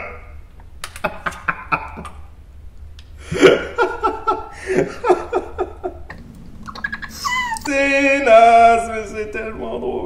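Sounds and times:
man laughing: 0:01.0 - 0:02.3, 0:03.2 - 0:06.2.

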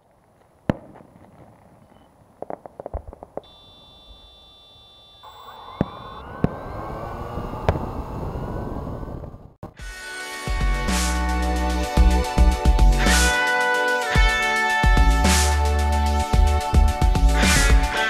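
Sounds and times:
crackling firework pops: 0:00.0 - 0:04.3, 0:05.7 - 0:06.6
firework bangs: 0:00.0 - 0:09.4
quadcopter motors whining: 0:03.5 - 0:09.5.

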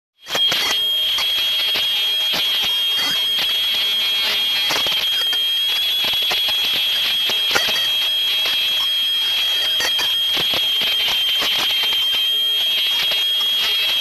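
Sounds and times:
scattered clicks: 0:00.2 - 0:03.6
embossing machine whining: 0:00.2 - 0:14.0.

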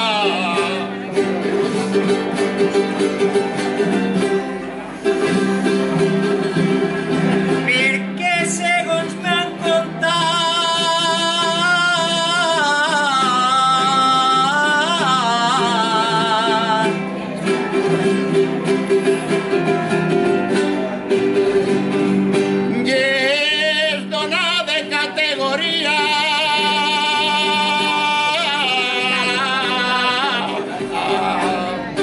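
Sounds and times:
man singing ornamented notes: 0:00.0 - 0:01.3, 0:07.6 - 0:17.4, 0:22.7 - 0:32.0.

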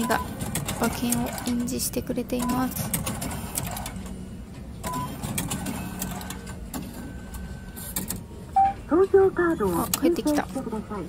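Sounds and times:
printer clicking rapidly: 0:00.1 - 0:01.7.

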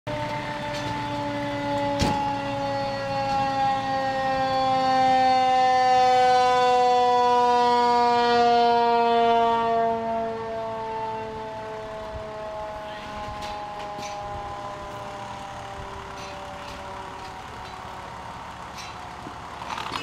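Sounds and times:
fire engine siren wailing: 0:00.1 - 0:20.0.

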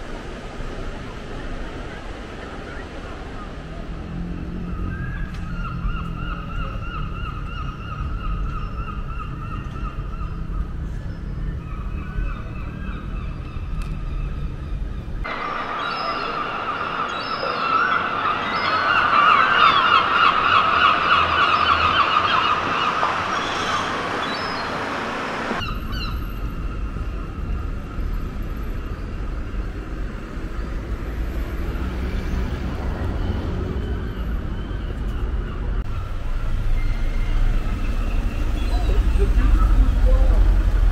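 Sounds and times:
low outdoor rumble: 0:00.1 - 0:40.9
gulls squawking: 0:15.3 - 0:26.2.

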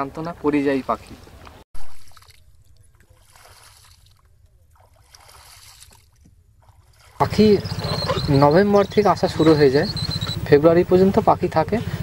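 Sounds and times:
water sloshing and trickling: 0:00.8 - 0:10.5
water splash: 0:01.0 - 0:07.2.

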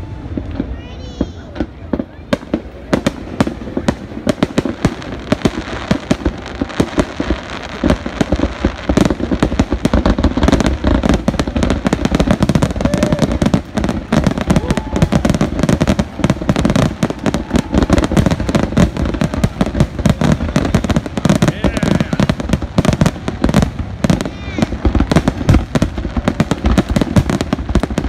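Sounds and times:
fireworks bursting: 0:00.0 - 0:28.0.

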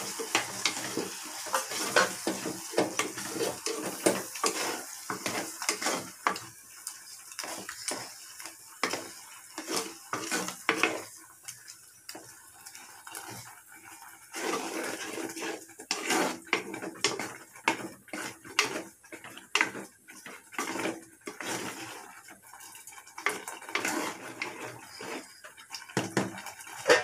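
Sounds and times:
spoon stirring in clay pot: 0:00.2 - 0:06.4, 0:08.8 - 0:11.1, 0:14.3 - 0:27.0.

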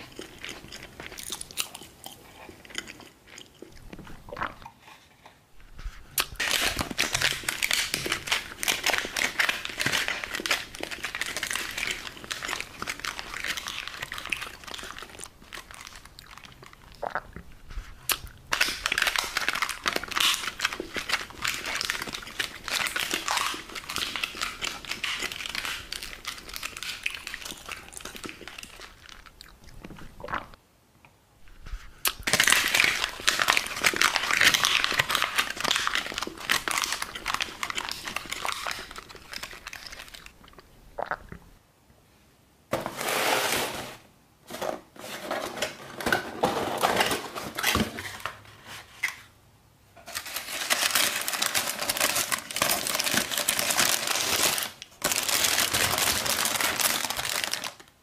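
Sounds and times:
plastic and paper crinkling: 0:06.0 - 0:17.0, 0:17.6 - 0:30.1, 0:31.7 - 0:40.4, 0:44.5 - 0:49.3, 0:50.0 - 0:58.0
paper wrapping crumpling: 0:06.3 - 0:16.9, 0:18.5 - 0:29.3, 0:32.2 - 0:40.3, 0:50.0 - 0:58.0.

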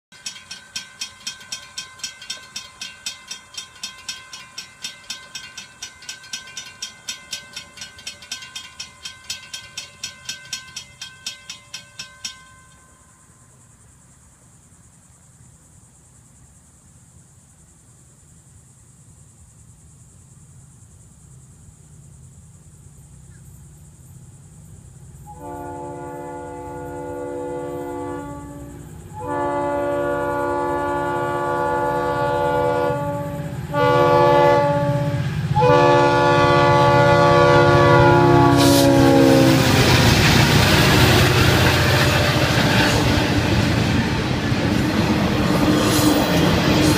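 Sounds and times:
railroad crossing bells ringing: 0:00.1 - 0:13.6, 0:25.4 - 0:46.9
train air horn blast: 0:25.3 - 0:40.1
diesel locomotive rumble: 0:26.0 - 0:46.9.

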